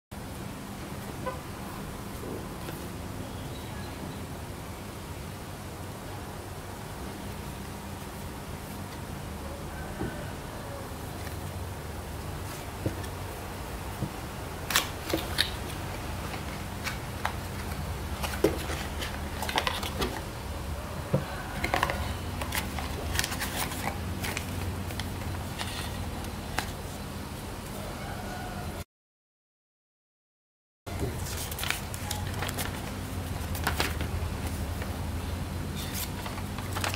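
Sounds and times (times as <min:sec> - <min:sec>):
paper manual rustling: 0:14.7 - 0:20.3, 0:21.6 - 0:27.0, 0:31.0 - 0:35.0, 0:35.7 - 0:36.9.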